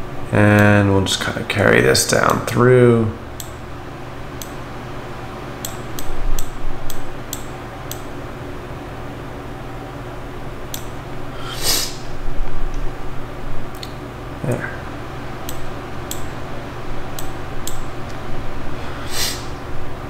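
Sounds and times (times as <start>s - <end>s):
steady low hum: 0.0s - 20.0s
breathy rush of noise: 18.7s - 19.6s.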